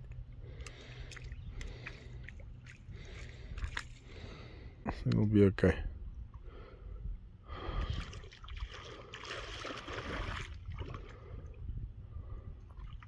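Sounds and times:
steady low rumble: 0.0s - 13.0s
wading through shallow water: 0.1s - 4.8s, 7.5s - 13.0s.

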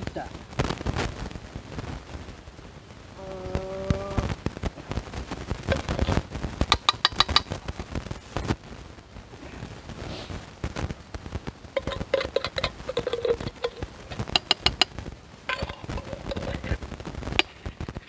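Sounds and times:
person humming: 3.2s - 4.4s
spoon scraping tin can: 11.8s - 16.8s, 17.4s - 18.0s.

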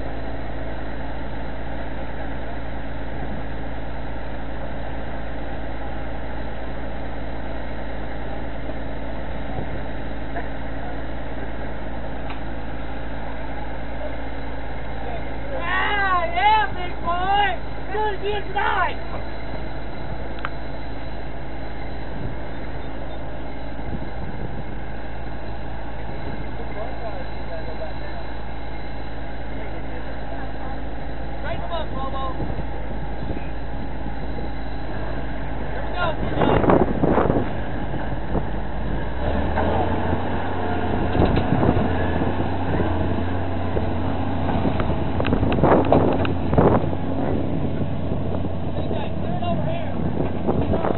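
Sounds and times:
vehicle engine running: 0.0s - 50.9s
wind buffeting microphone: 22.0s - 22.7s, 23.8s - 25.2s, 31.8s - 50.9s.

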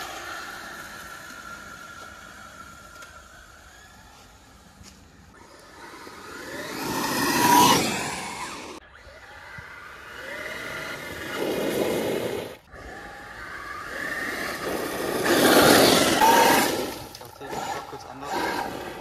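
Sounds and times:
electric motor whining: 0.0s - 19.0s
tyres crunching gravel: 13.9s - 19.0s.

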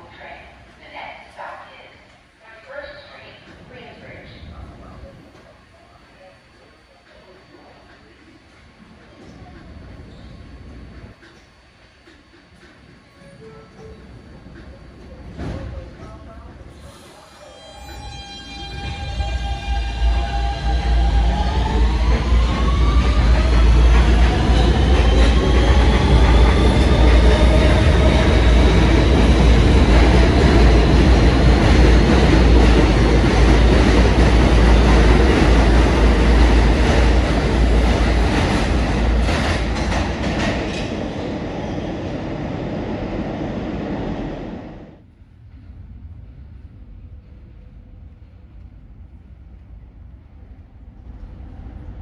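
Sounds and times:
train traction motor whine: 1.4s - 39.2s
wheels rumbling on rail: 18.3s - 52.0s
rail-joint clicks: 39.2s - 41.0s.

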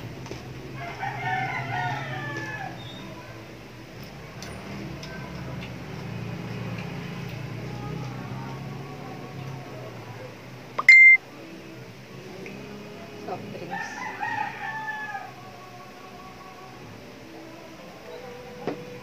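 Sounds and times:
rooster crowing: 0.8s - 3.0s, 13.6s - 15.5s.

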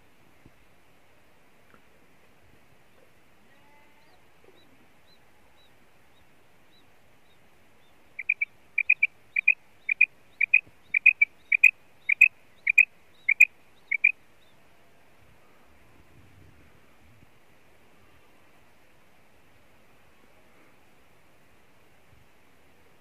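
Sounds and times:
faint high peeps: 8.2s - 14.2s
quail calling: 8.2s - 14.2s.

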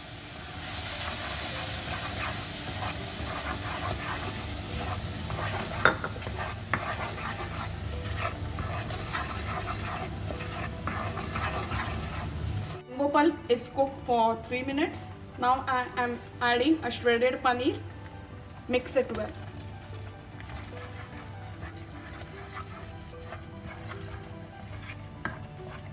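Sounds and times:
fruit pulp sizzling in a pan: 0.0s - 12.8s, 18.7s - 25.9s
spatula scraping and tapping pan: 1.0s - 12.6s, 19.1s - 25.9s.

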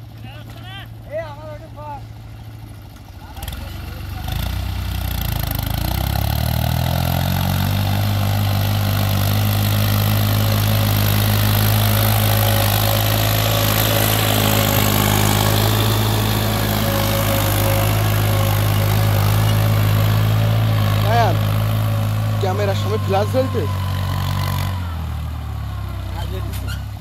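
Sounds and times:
tractor diesel engine under load: 0.0s - 27.0s.

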